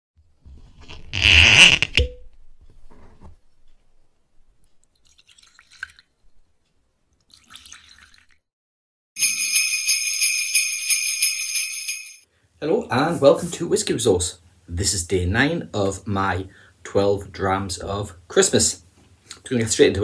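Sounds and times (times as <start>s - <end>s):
jingle bells shaken: 9.2s - 12.2s.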